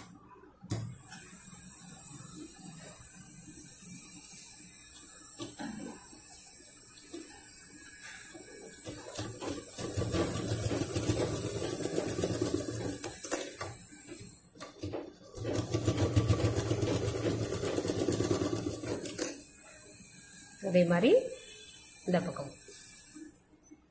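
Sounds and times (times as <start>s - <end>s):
sewing machine stitching: 8.1s - 19.8s.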